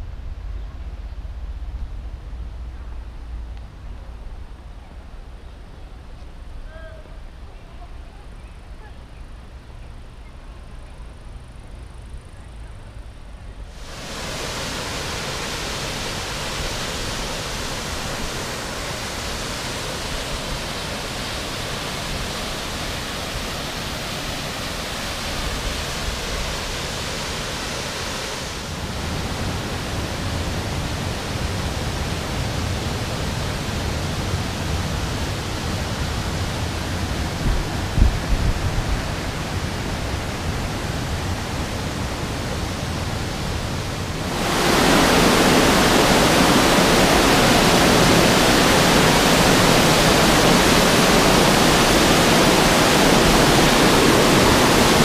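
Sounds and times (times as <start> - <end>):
waterfall pouring into pool: 13.8 - 28.7, 44.3 - 55.0.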